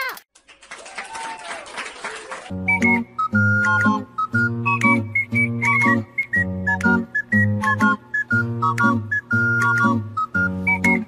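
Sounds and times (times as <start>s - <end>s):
bouncy background music: 2.5s - 11.0s.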